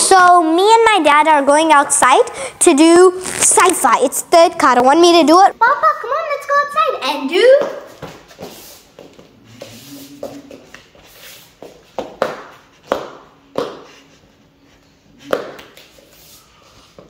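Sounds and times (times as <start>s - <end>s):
hands and feet striking: 11.6s - 14.0s.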